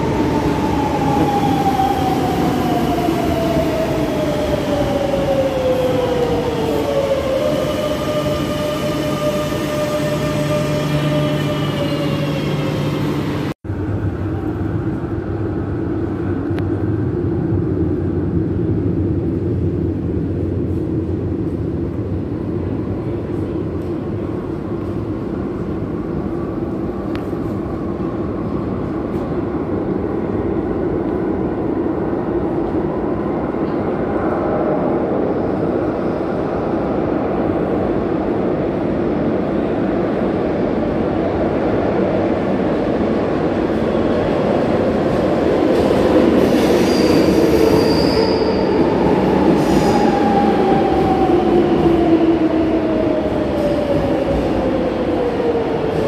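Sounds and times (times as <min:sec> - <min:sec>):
low rumble of metro train: 0:00.0 - 0:56.0.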